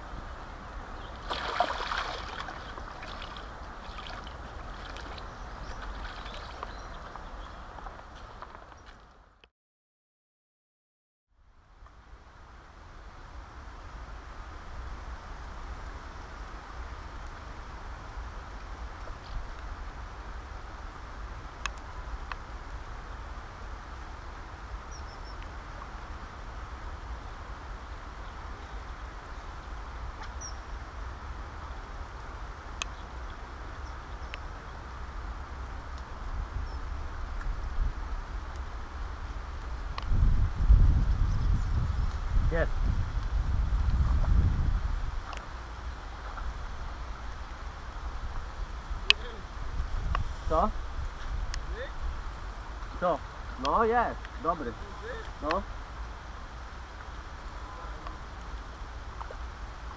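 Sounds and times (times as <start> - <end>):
river water lapping at bank: 0.6 - 8.7, 45.1 - 50.2, 54.2 - 59.9
bird chirp: 4.9 - 8.0, 24.9 - 25.4, 30.2 - 30.8
wind rumble on microphone: 11.5 - 59.9.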